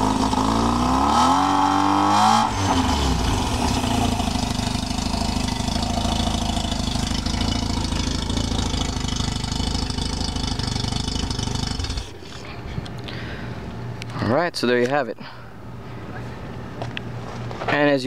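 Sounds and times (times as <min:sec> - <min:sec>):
rotary engine idling: 0:02.5 - 0:14.1.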